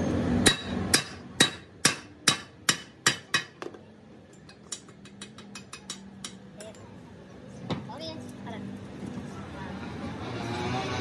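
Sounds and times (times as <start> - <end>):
chipping hammer striking metal: 0.4 - 3.6.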